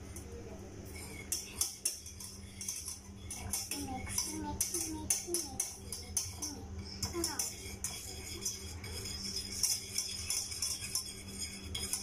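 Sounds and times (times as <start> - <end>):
whisk clinking and scraping in pan: 1.2 - 12.0
child singing: 3.3 - 7.6.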